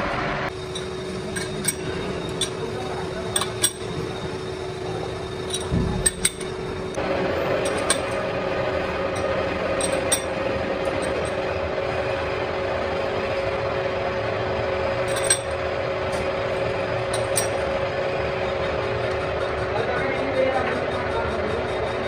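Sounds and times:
metal lathe humming: 0.4s - 22.0s
sharp metallic clinks: 0.5s - 7.0s, 9.1s - 11.4s, 15.0s - 15.6s, 17.0s - 17.6s.

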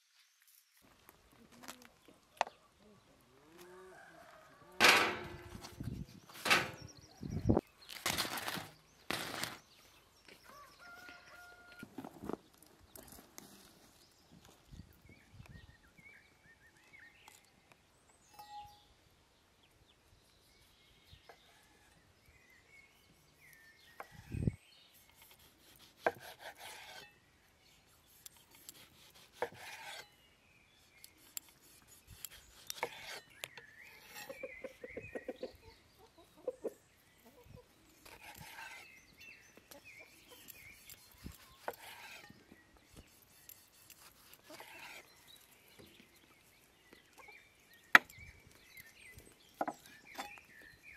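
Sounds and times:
small birds chirping: 5.5s - 50.9s
knife slicing on wooden board: 28.2s - 30.1s
chickens clucking: 34.0s - 38.2s.

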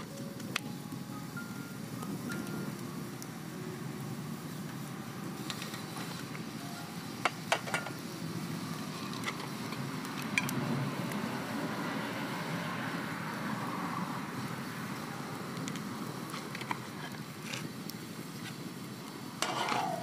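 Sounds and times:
low background noise: 0.0s - 20.0s
kitchen utensils and dishes clinking: 19.4s - 20.0s.

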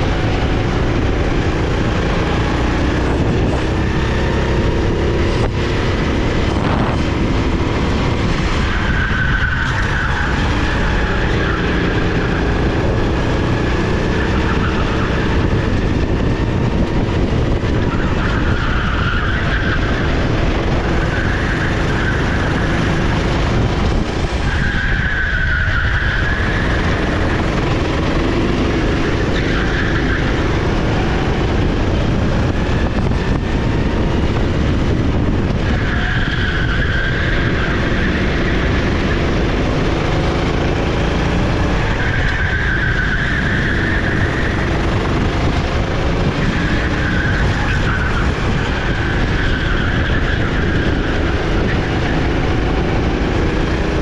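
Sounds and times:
kart engine running: 0.0s - 54.0s
wind rumble on microphone: 0.0s - 54.0s
tyre squeal: 8.2s - 16.2s, 17.6s - 23.2s, 24.0s - 31.7s, 35.6s - 39.5s, 41.6s - 45.6s, 46.2s - 52.6s.

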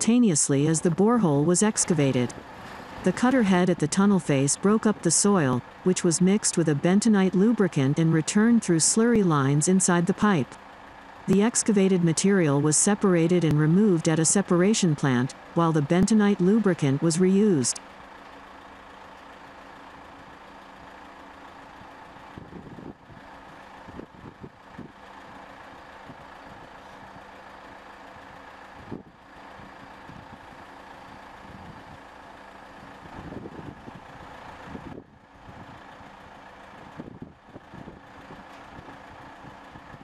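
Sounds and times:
heavy machinery humming: 0.0s - 40.0s.

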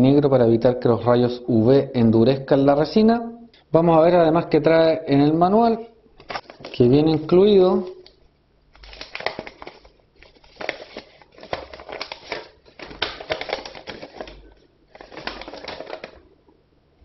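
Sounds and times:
paper crinkling and rustling: 6.2s - 16.3s.

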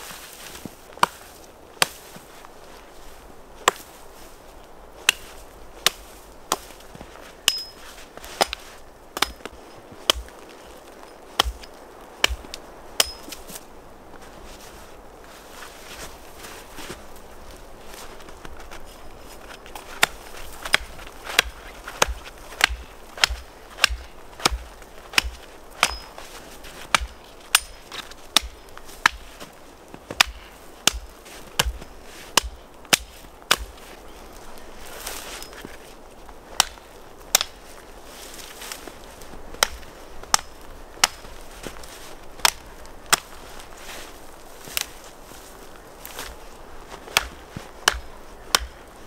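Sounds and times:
branches rustling: 0.0s - 49.0s
axe chopping branches: 0.1s - 2.3s, 3.6s - 4.0s, 5.0s - 13.6s, 17.9s - 34.0s, 36.5s - 38.9s, 39.5s - 43.9s, 46.9s - 49.0s.

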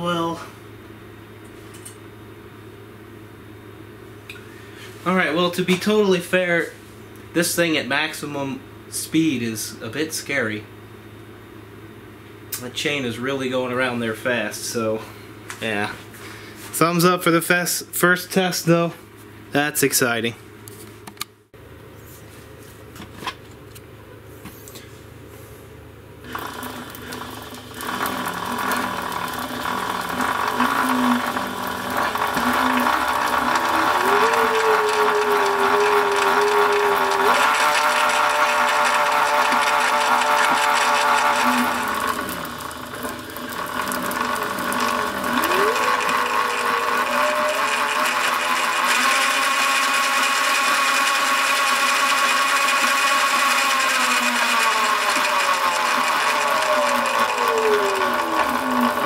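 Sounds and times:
electric motor whine: 26.2s - 59.0s
chain whirring: 27.8s - 42.7s.

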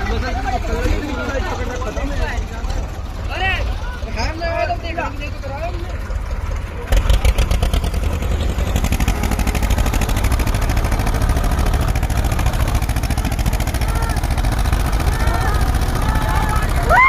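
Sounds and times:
tractor engines at full throttle: 0.0s - 17.0s.

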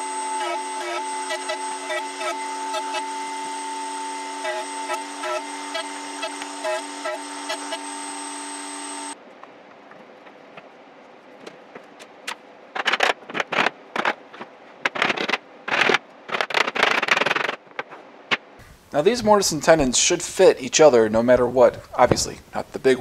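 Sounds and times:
power tool whining: 0.0s - 9.2s.

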